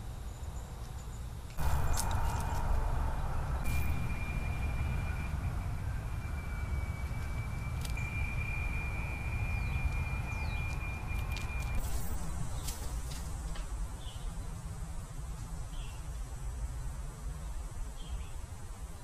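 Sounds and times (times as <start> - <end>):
short rising chirps: 1.6 - 13.5
thin high tone: 1.6 - 13.5
low rumble: 1.6 - 14.0.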